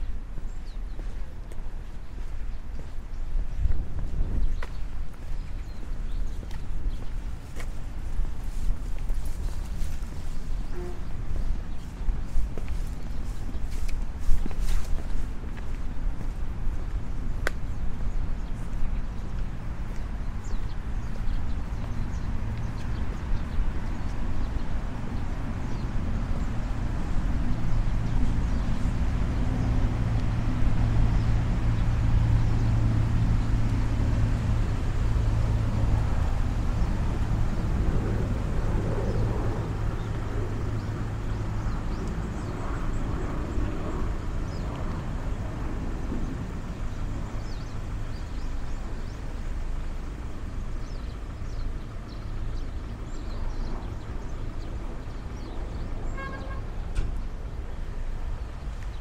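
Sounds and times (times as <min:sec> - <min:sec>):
outdoor background noise: 0:00.0 - 0:59.0
vehicle engine humming: 0:00.0 - 0:59.0.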